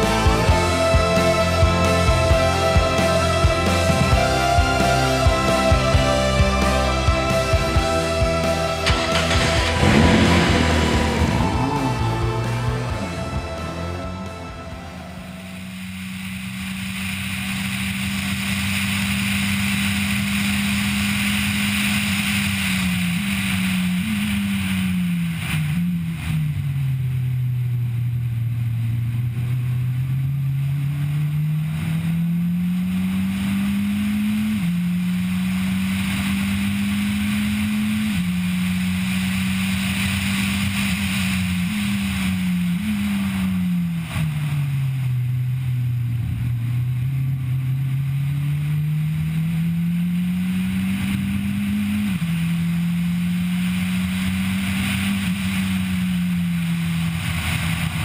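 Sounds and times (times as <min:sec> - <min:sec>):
road and wind noise: 0:00.0 - 0:58.0
race car engine shifting gears: 0:08.8 - 0:15.0.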